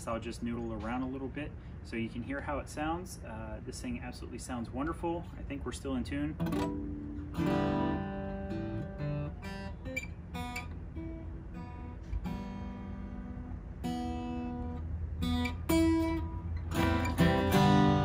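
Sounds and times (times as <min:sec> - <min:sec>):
acoustic guitar notes and chords: 0:05.2 - 0:18.0.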